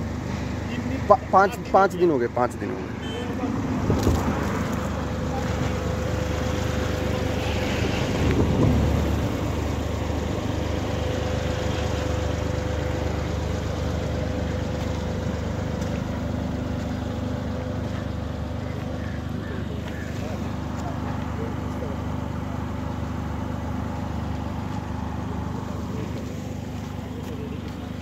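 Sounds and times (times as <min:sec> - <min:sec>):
wind rumbling on microphone: 0:07.5 - 0:09.8.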